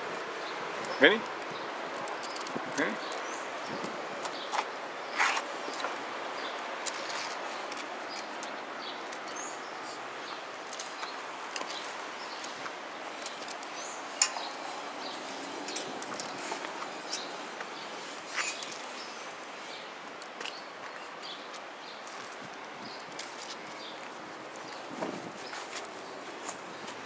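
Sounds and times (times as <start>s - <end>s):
outdoor background hiss: 0.0s - 27.0s.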